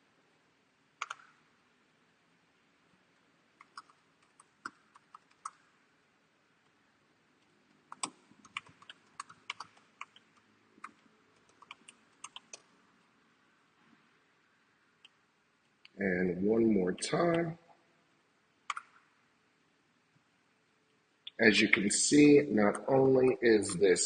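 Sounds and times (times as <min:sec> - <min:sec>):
computer keyboard typing: 0:01.0 - 0:01.4, 0:03.6 - 0:05.8, 0:07.9 - 0:12.7, 0:18.7 - 0:19.0.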